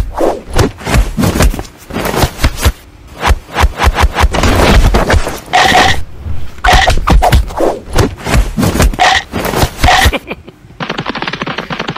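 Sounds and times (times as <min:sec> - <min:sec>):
fight hits and whooshes: 0:00.0 - 0:05.4, 0:06.7 - 0:09.9.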